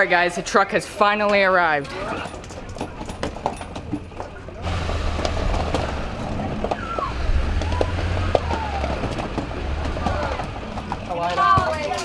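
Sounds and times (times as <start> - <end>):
truck engine idling: 2.9 - 11.9
high gliding squeaks and clicks: 5.8 - 10.5.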